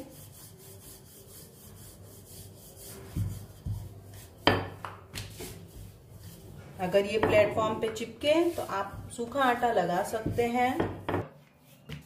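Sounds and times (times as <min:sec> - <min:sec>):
rolling pin rubbing on dough: 0:00.0 - 0:12.0
rolling pin knocking on counter: 0:03.1 - 0:05.0, 0:07.2 - 0:07.8, 0:10.2 - 0:11.3.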